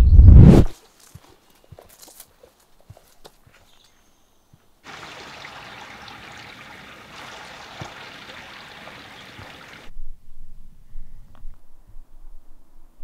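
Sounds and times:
mountain stream rushing: 0:04.9 - 0:09.9.

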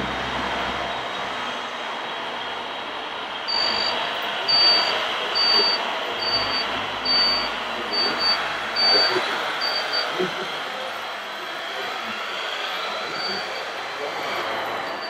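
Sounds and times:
reversing beeper short high beeps: 0:03.5 - 0:10.8, 0:12.8 - 0:15.0.

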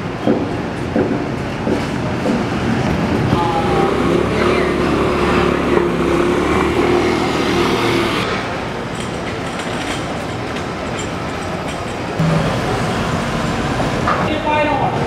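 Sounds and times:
street background noise: 0:00.0 - 0:15.0
vehicle engine humming: 0:02.1 - 0:09.4, 0:11.7 - 0:14.2.

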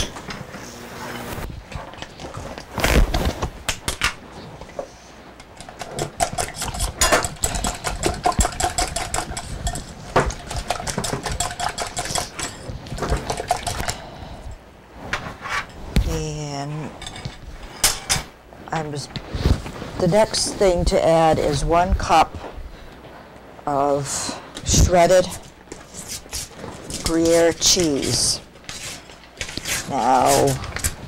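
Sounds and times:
utensil knocking bowl: 0:05.6 - 0:13.9
whisk beating in bowl: 0:05.6 - 0:13.9.

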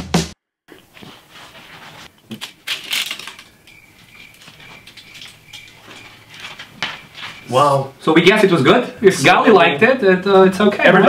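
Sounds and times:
pastry crackling: 0:00.7 - 0:07.6.

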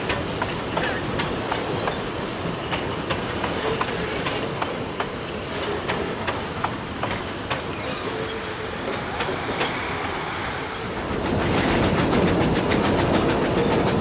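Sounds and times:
rumble of wheels on rail: 0:00.0 - 0:14.0
clicks from rail joints: 0:02.7 - 0:09.9.

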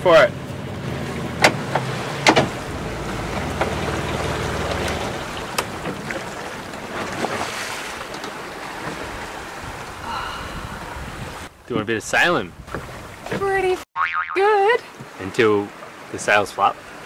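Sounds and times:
water rushing past hull: 0:00.0 - 0:13.8, 0:14.8 - 0:17.0
wind rushing: 0:09.0 - 0:11.6.

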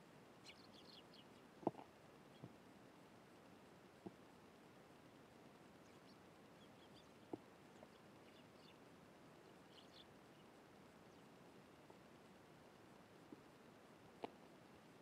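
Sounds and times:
faint steady hiss: 0:00.0 - 0:15.0
sparrows chirping: 0:00.4 - 0:02.5, 0:05.5 - 0:11.3.

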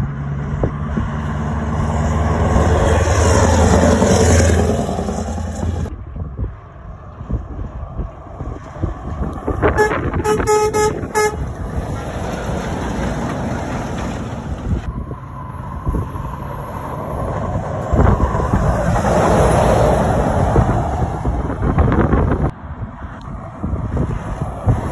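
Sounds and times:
lorry passing: 0:00.0 - 0:22.8
lorry air horn toots: 0:09.6 - 0:11.6.

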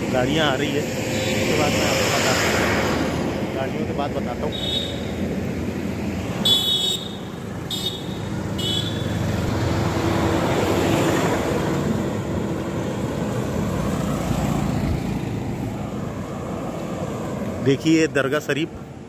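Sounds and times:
motorcycle passing: 0:00.0 - 0:17.9
truck passing: 0:00.0 - 0:19.0
horn beeping: 0:04.5 - 0:05.2, 0:06.4 - 0:09.2.

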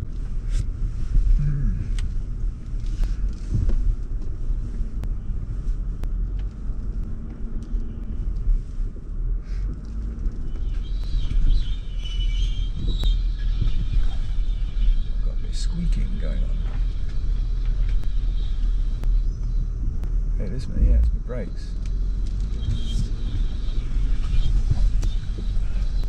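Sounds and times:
vehicle engine and tyres rumbling: 0:00.0 - 0:26.0
high wavering squeal: 0:10.4 - 0:20.4, 0:21.3 - 0:26.0.

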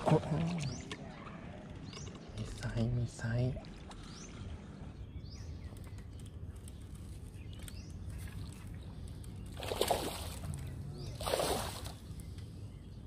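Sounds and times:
water splashes: 0:00.0 - 0:01.4, 0:09.4 - 0:12.0
low steady rumble: 0:00.0 - 0:13.0.

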